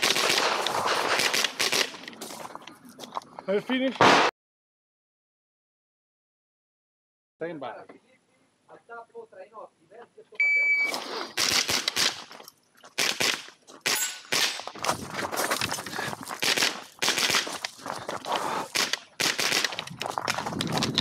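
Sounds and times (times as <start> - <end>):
rifle firing rapid shots: 0.0 - 2.0, 11.4 - 12.3, 13.0 - 14.6, 16.4 - 17.5, 18.7 - 19.8.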